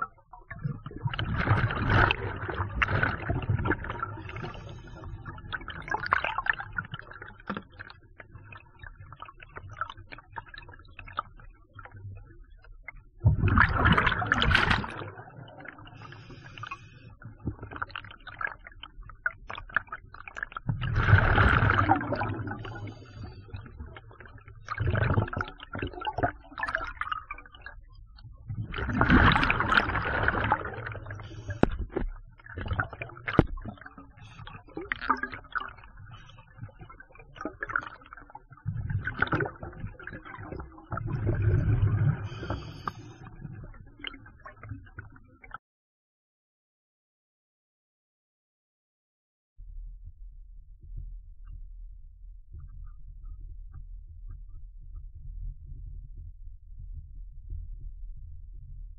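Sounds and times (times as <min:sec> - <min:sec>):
exhaled bubbles underwater: 0:00.0 - 0:45.6
faint clicking and crackle: 0:00.0 - 0:45.6.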